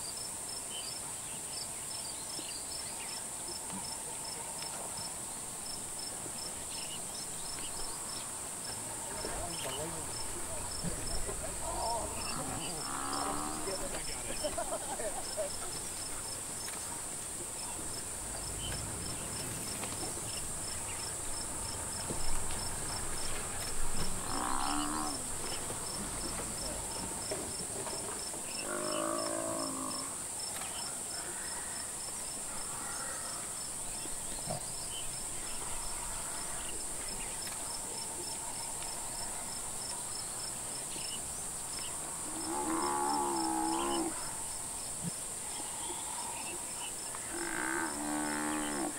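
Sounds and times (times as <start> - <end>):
buffalo bellowing in distress: 11.5 - 13.9, 24.2 - 25.3, 28.6 - 30.2, 42.3 - 44.2.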